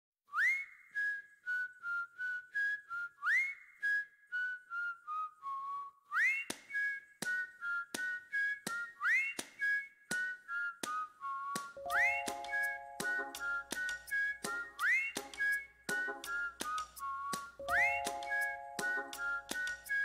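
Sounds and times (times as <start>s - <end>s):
whistled melody: 0.3s - 20.0s
light clicking beat: 11.6s - 20.0s.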